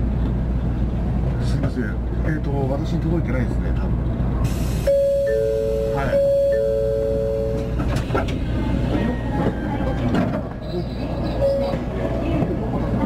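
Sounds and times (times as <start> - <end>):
train running noise: 0.0 - 13.0
two-note electronic chime: 4.9 - 7.7.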